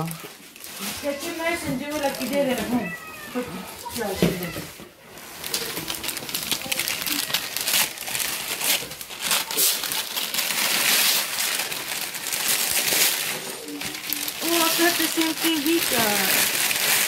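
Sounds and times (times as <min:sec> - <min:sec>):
wrapping paper crinkling: 0:00.0 - 0:17.0.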